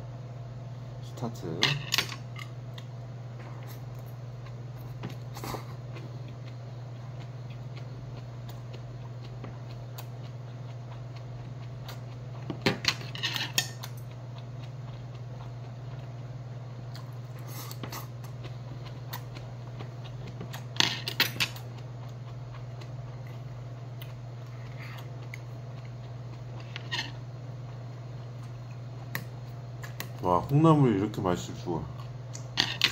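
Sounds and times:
steady low hum: 0:00.0 - 0:32.9.

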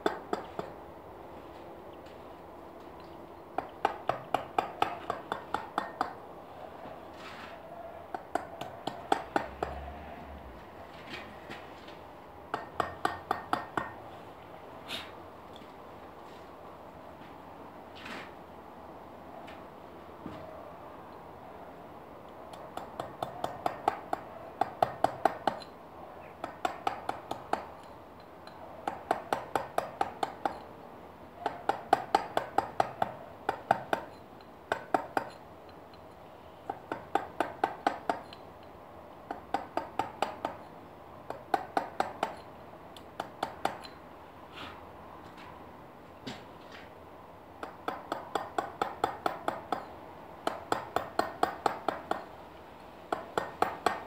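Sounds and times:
mallet tapping chisel into stone: 0:03.6 - 0:06.2, 0:08.1 - 0:09.8, 0:12.5 - 0:14.0, 0:22.5 - 0:25.7, 0:26.4 - 0:27.9, 0:28.5 - 0:30.6, 0:31.4 - 0:35.4, 0:36.7 - 0:38.4, 0:39.3 - 0:40.7, 0:41.3 - 0:42.4, 0:43.1 - 0:44.0, 0:47.6 - 0:52.3, 0:53.1 - 0:54.0.

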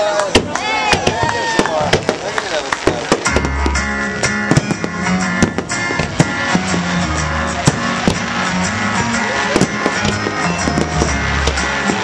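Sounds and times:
fireworks bangs: 0:00.0 - 0:12.0
music with guitar and drums: 0:03.1 - 0:12.0.

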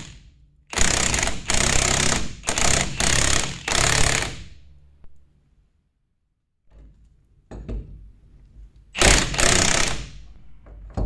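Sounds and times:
impact wrench: 0:00.0 - 0:04.7, 0:09.0 - 0:10.4.

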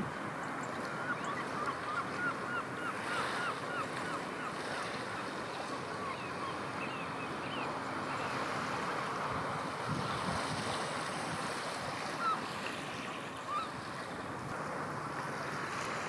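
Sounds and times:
surf: 0:00.0 - 0:16.0
strong wind: 0:09.2 - 0:12.0.

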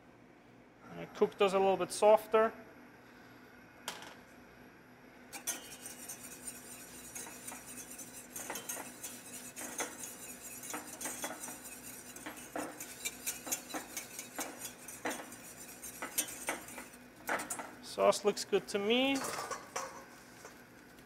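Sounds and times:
whisk clinking in a saucepan: 0:05.4 - 0:17.6.

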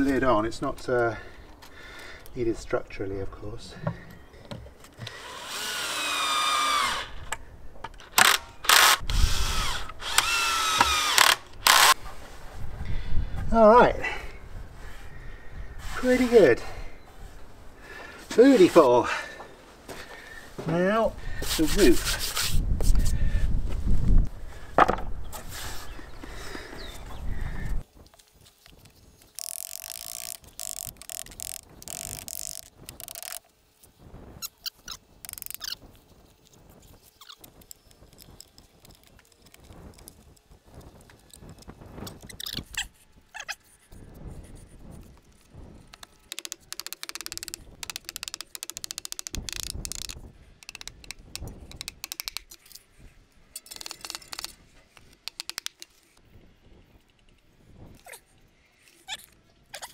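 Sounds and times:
hammer tapping nails: 0:50.7 - 0:52.5.

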